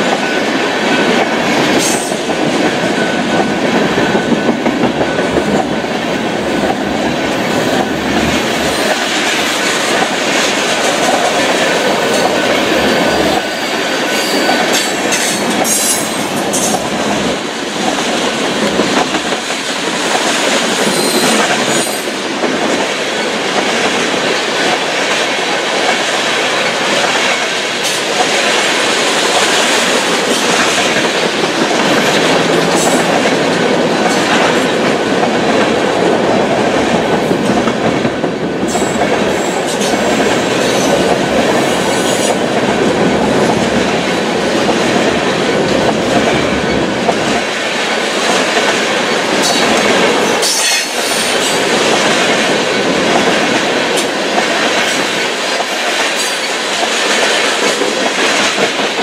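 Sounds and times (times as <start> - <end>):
train wheels rumbling on rails: 0.0 - 59.0.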